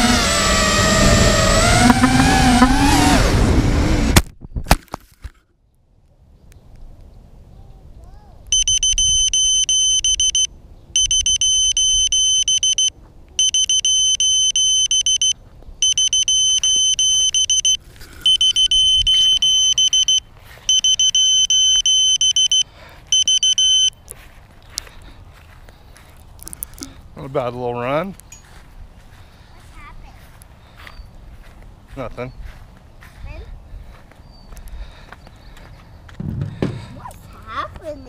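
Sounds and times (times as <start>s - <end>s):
high-pitched beeper beeps: 8.5s - 24.0s.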